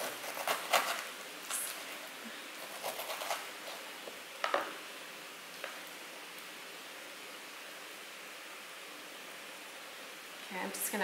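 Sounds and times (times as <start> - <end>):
knife cutting pineapple: 0.0 - 1.7, 2.6 - 3.8.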